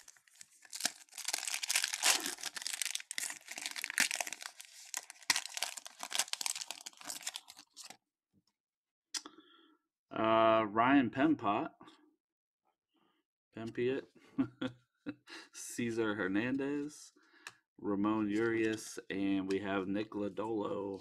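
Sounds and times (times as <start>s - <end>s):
foil wrapper tearing and crinkling: 0.0s - 8.0s.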